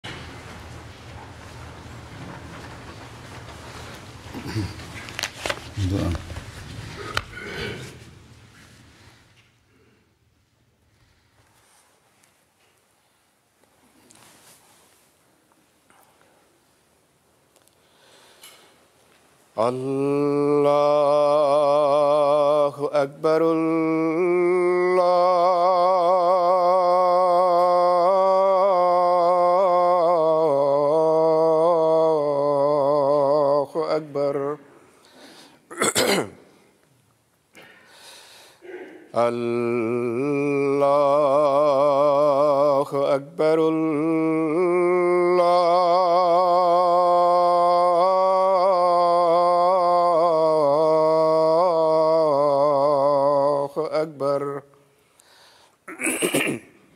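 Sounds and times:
man chanting call to prayer: 5.7 - 6.6, 19.6 - 34.7, 38.6 - 54.7.

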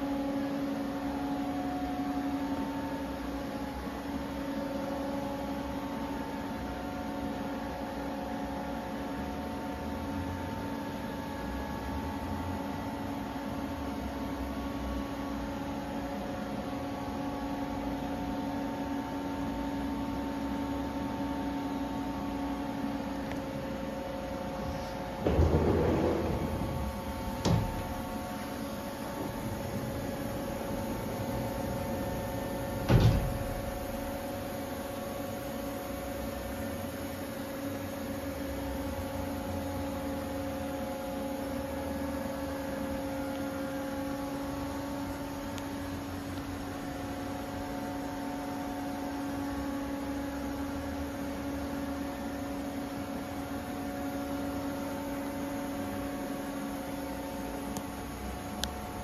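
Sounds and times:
industrial machinery humming: 0.0 - 59.0.

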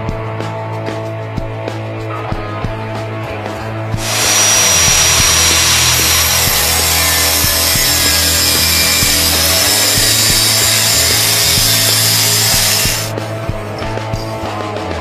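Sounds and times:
angle grinder cutting steel: 4.0 - 13.1.

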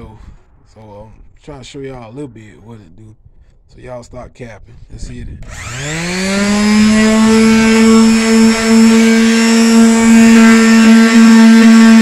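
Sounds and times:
electric sander motor whine: 5.4 - 12.0.

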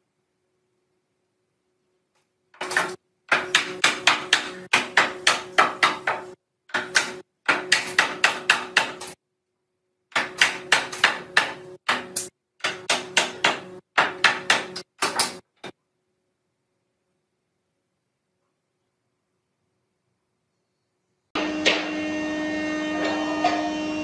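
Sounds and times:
rapid hammer blows on wood: 2.6 - 9.2, 10.1 - 15.4.

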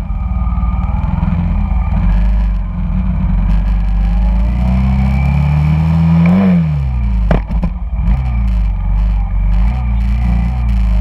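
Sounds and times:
motorcycle engine revving: 0.0 - 11.0
sharp knocks: 7.2 - 7.8.

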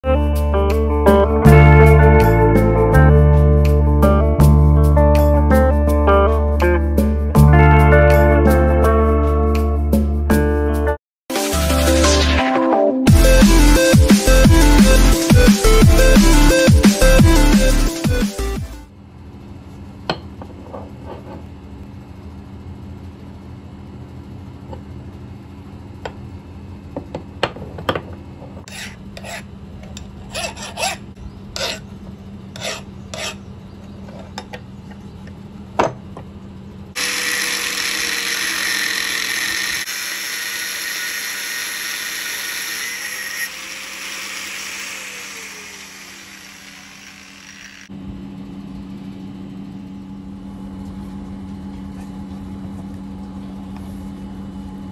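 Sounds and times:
angle grinder cutting steel: 28.7 - 29.4, 37.0 - 47.9.

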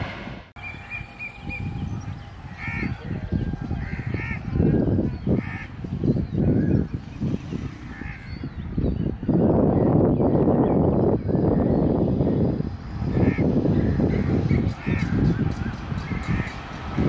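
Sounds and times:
low gusty rumble: 0.0 - 17.0
crows cawing: 2.4 - 3.2, 3.8 - 4.4.

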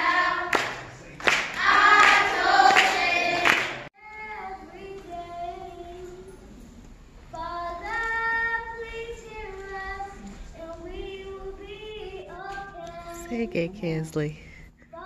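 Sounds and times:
children's choir singing: 0.0 - 6.3.

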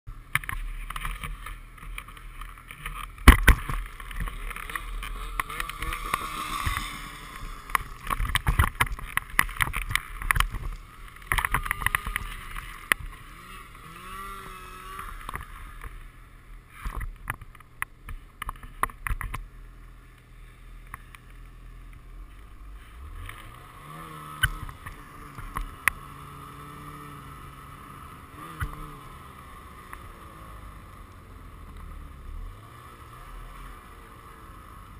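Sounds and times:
sharp knocks and thumps: 0.3 - 13.2
snowmobile engine revving: 0.3 - 17.4, 19.6 - 34.9.

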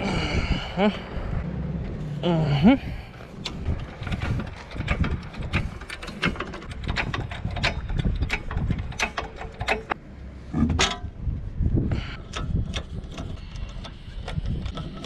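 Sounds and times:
metal wheel nuts and wrench clinking: 3.2 - 10.0, 10.7 - 11.1, 12.0 - 15.0.

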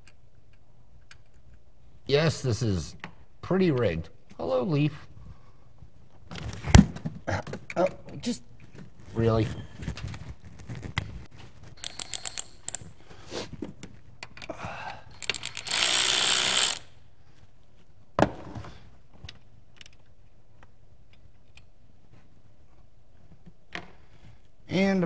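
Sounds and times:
cordless drill running: 11.8 - 12.9, 15.2 - 16.9
ratcheting clicks: 11.8 - 13.0, 15.2 - 16.9.

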